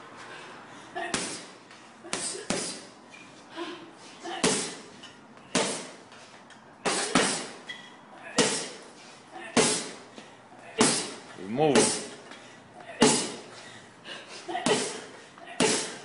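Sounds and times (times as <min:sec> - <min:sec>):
punches thudding on heavy bag: 0:04.3 - 0:04.9, 0:05.5 - 0:06.0, 0:06.8 - 0:07.6, 0:09.5 - 0:10.0, 0:10.8 - 0:12.2, 0:15.6 - 0:16.0.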